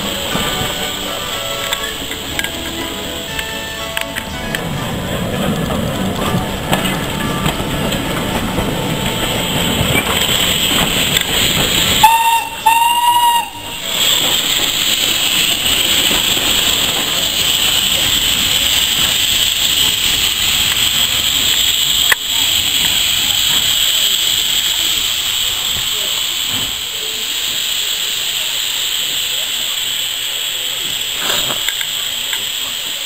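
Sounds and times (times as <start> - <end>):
steam locomotive whistle blasts: 0.0 - 4.6, 11.9 - 15.6
loud hiss of escaping steam: 0.0 - 33.0
train rumbling past: 0.0 - 33.0.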